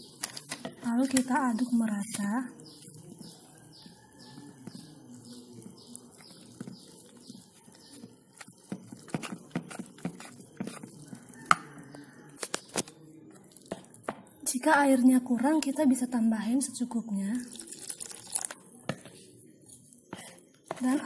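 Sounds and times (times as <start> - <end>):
spoon stirring batter: 0.0 - 21.0
spoon knocking plastic bowl: 3.2 - 12.0.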